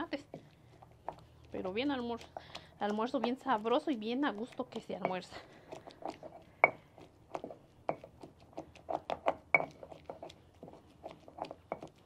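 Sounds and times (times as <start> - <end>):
stone pestle crushing wet salsa: 0.0 - 12.0
stone knocking on stone: 6.6 - 6.8, 8.9 - 9.9.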